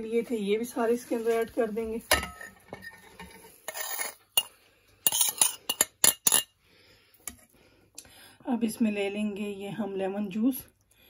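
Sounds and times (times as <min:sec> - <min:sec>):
spoon clinking on plate and bowl: 0:03.7 - 0:06.5.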